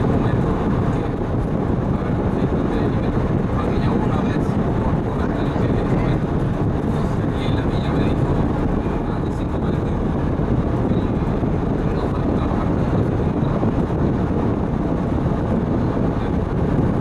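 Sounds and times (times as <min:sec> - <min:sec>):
bus road and engine noise: 0:00.0 - 0:17.0.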